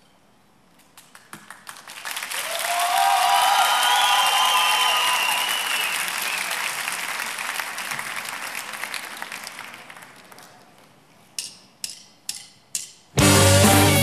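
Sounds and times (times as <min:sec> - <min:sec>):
audience applause: 0:01.5 - 0:10.7
drumstick clicks: 0:11.4 - 0:13.1.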